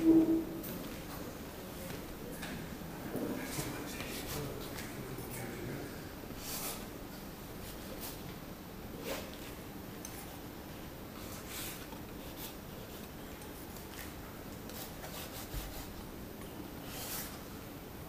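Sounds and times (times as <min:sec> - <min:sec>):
low room hum: 0:00.0 - 0:18.0
paintbrush rubbing on paper: 0:14.7 - 0:16.1.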